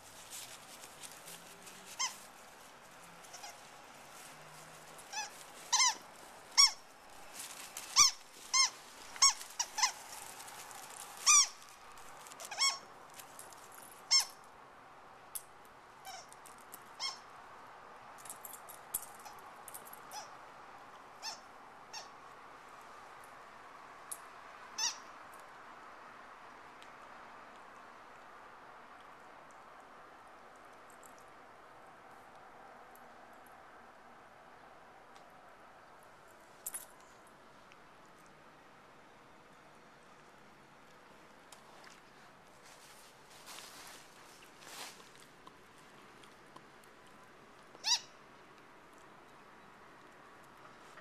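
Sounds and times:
squeaky dog toy: 1.9 - 2.2, 3.2 - 3.6, 5.0 - 6.9, 7.9 - 10.0, 11.2 - 11.6, 12.3 - 12.9, 14.1 - 14.4, 16.0 - 16.3, 16.9 - 17.3, 20.1 - 20.4, 21.2 - 22.2, 24.8 - 25.1, 47.8 - 48.1.

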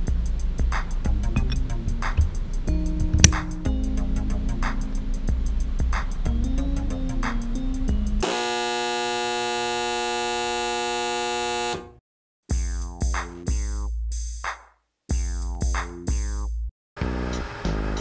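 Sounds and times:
harsh electronic buzzer tone: 8.2 - 12.0.

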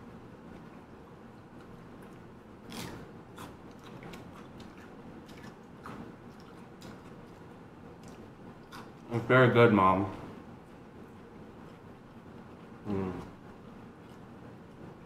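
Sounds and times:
person chewing food: 0.5 - 9.1.

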